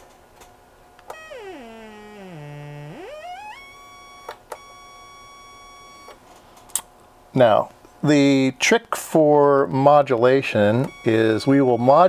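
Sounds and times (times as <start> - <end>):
buzzy synthesizer sawtooth tone: 1.1 - 6.1.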